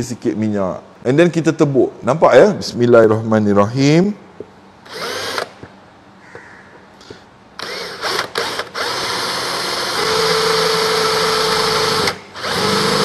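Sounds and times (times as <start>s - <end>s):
drill whining into steel: 4.8s - 5.6s, 7.6s - 13.0s.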